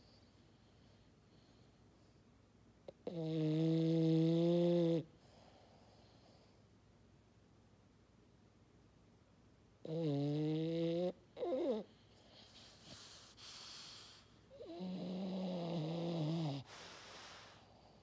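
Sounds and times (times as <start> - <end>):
dog snoring: 2.9 - 6.4, 9.8 - 18.0
dog breathing: 11.4 - 18.0.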